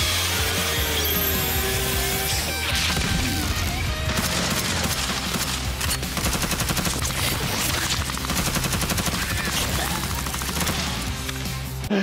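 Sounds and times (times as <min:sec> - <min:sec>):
rapid rifle gunfire: 0:02.8 - 0:11.2.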